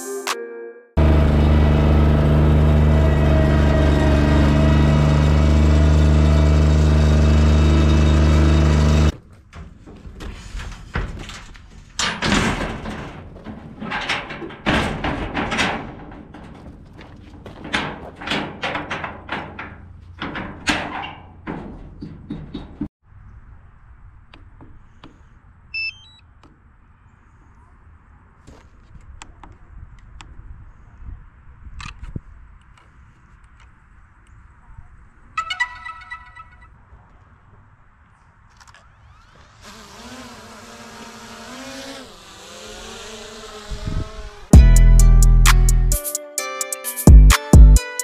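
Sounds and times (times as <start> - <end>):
mower engine running: 1.0 - 9.2, 39.0 - 44.7
metal ramp clanking: 1.0 - 22.9
short electronic beeps: 25.8 - 26.2.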